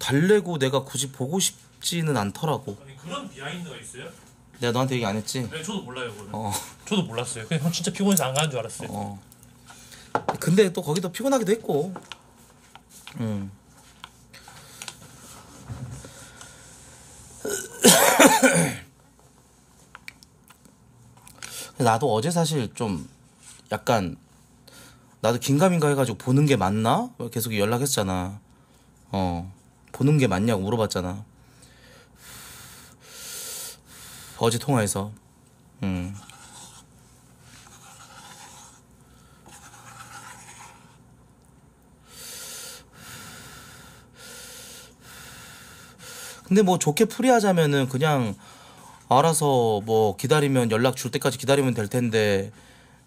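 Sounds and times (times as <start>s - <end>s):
man coughing hard: 17.4s - 18.9s
chopsticks scraping in a bowl: 36.0s - 41.0s.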